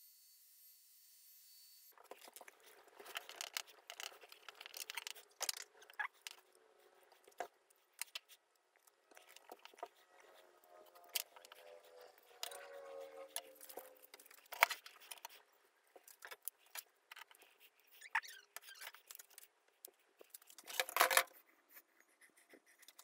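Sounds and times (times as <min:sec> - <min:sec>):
gloves and tape rustling: 0:01.9 - 0:21.9.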